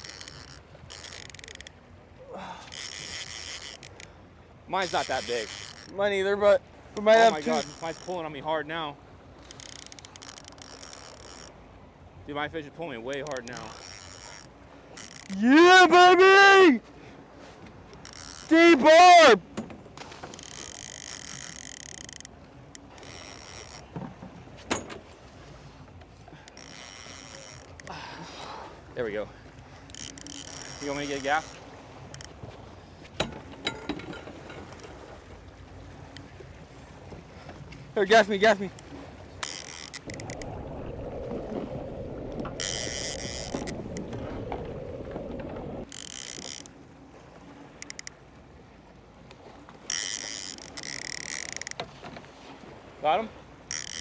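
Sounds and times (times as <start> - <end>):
fishing reel gears whirring: 0.0 - 1.8, 2.6 - 4.1, 4.8 - 6.1, 7.0 - 8.4, 9.3 - 11.6, 13.1 - 15.7, 17.9 - 19.4, 20.2 - 23.9, 26.3 - 28.0, 29.8 - 32.5, 38.1 - 40.6, 42.4 - 44.1, 45.8 - 46.8, 47.6 - 48.2, 49.8 - 51.8, 53.6 - 54.0
boat and water noise: 0.0 - 54.0.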